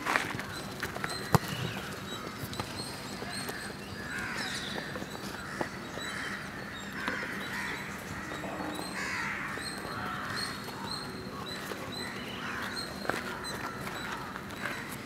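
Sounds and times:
crows cawing: 3.6s - 11.0s, 12.0s - 15.0s.

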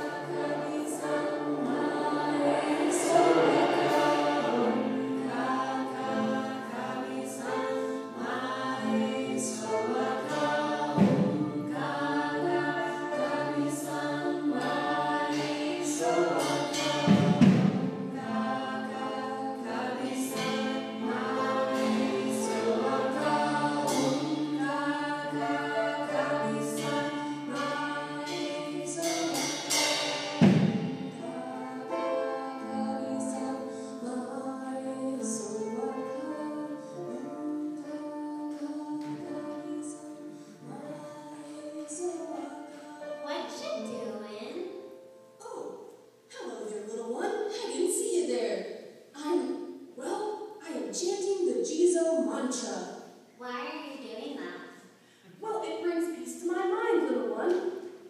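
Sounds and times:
deep percussion hits: 0.0s - 7.4s, 8.1s - 32.7s
choir singing sustained notes: 0.0s - 43.6s.

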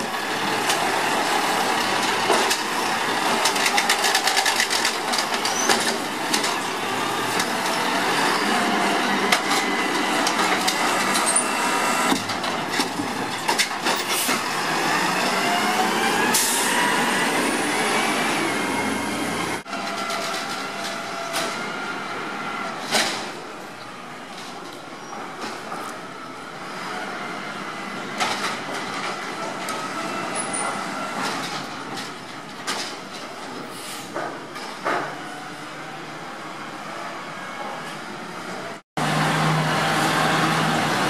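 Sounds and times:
truck driving off: 0.0s - 23.8s, 38.6s - 41.0s.

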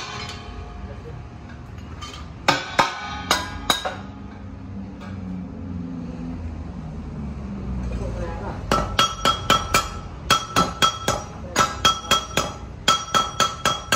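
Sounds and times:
hammer striking metal: 0.0s - 0.7s, 2.0s - 5.3s, 8.7s - 13.9s.

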